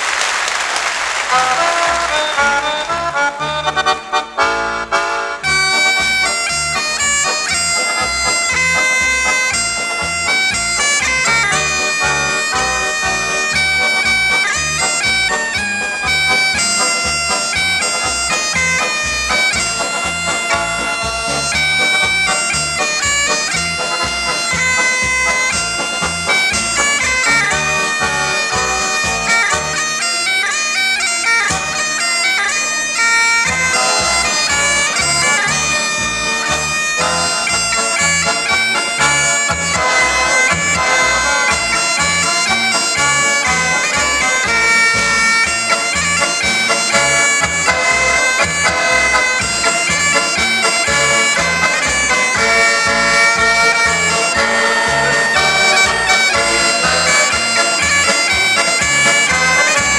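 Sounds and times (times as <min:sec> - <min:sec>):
reedy bagpipe-like melody: 0:01.2 - 0:59.9
held drone note: 0:33.5 - 0:59.9.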